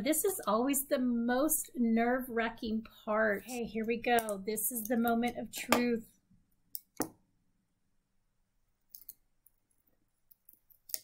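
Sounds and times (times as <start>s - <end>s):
soft clicks and crinkles: 8.8s - 11.0s.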